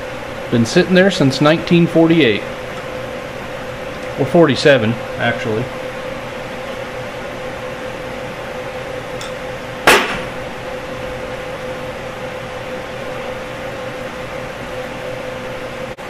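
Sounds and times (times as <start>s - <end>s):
shop background hum: 0.0s - 16.0s.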